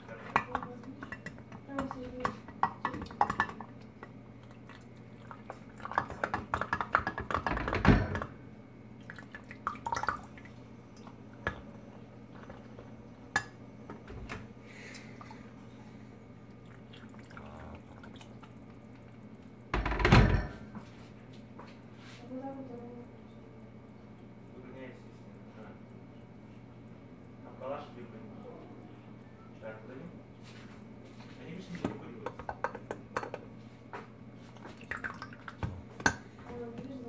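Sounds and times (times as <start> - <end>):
water pouring into mug: 9.0 - 11.5, 16.5 - 19.6, 34.5 - 35.7.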